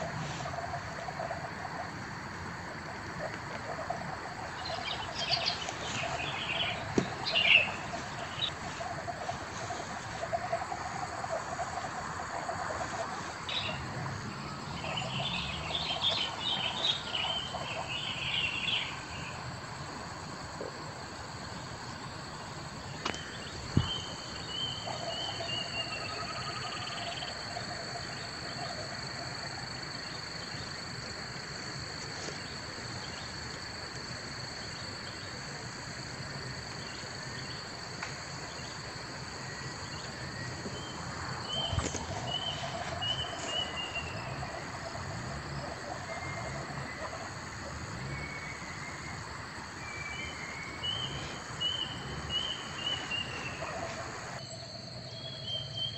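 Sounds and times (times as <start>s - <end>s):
birds chirping: 4.1s - 19.4s, 22.0s - 27.4s, 38.4s - 54.4s.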